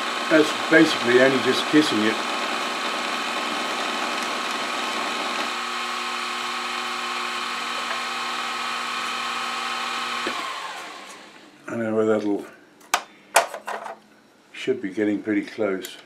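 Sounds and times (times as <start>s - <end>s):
machine winding down: 0.0s - 11.4s
milling machine spindle whine: 0.0s - 11.4s.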